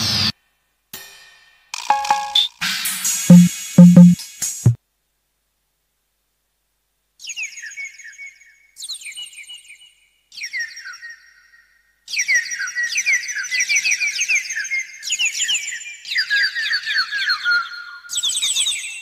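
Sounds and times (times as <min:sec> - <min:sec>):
falling electronic chirps: 0:01.8 - 0:02.5, 0:03.3 - 0:04.2.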